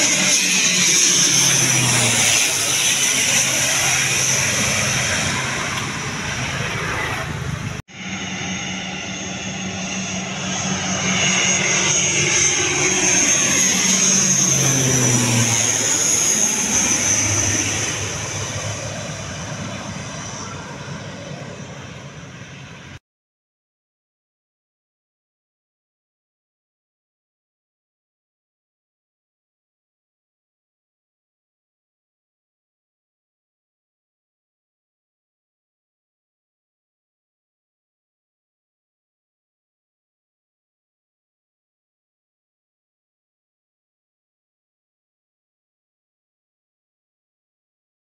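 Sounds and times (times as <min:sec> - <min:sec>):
high steady engine whine: 0:00.0 - 0:23.0
turboprop aircraft passing overhead: 0:00.0 - 0:23.0.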